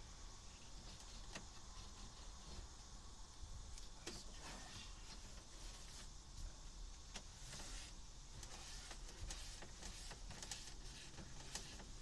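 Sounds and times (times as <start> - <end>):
rag rubbing on plastic: 0.6 - 2.7, 7.3 - 12.0.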